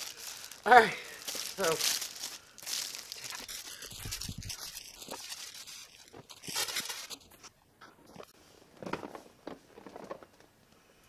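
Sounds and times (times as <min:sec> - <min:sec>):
plastic shrink wrap crinkling: 0:00.0 - 0:07.5.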